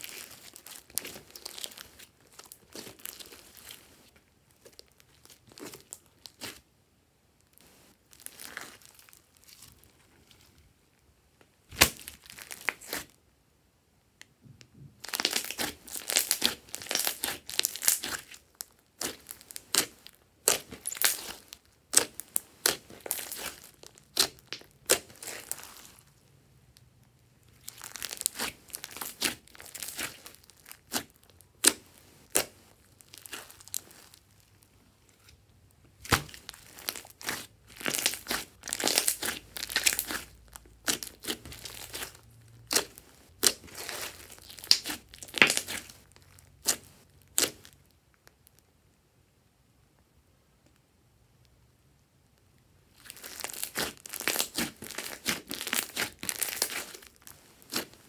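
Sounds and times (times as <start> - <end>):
slime popping and crackling: 0.0 - 3.8, 4.6 - 6.6, 11.7 - 13.1, 15.0 - 26.0, 27.4 - 34.6, 36.0 - 48.5, 52.9 - 58.0.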